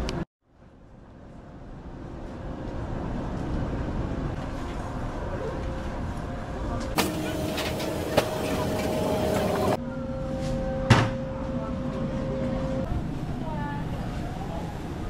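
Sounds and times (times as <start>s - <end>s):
traffic rumble: 0.0s - 9.8s, 11.5s - 15.0s.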